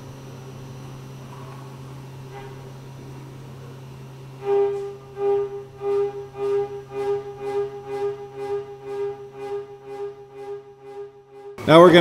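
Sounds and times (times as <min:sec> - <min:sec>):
repeated pitched note: 0:04.4 - 0:12.0.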